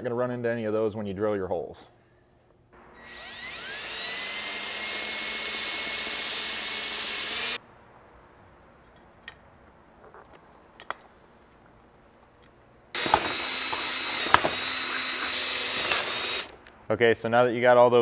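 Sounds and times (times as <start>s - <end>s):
cordless drill whining: 2.8s - 7.6s, 13.0s - 16.7s.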